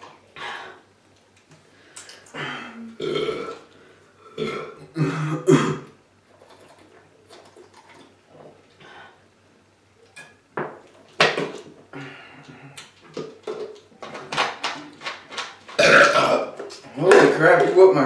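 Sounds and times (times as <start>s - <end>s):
people gulping and swallowing: 2.0s - 5.7s, 15.8s - 16.9s
plastic bottles knocking and crinkling: 10.6s - 11.8s, 13.0s - 17.9s.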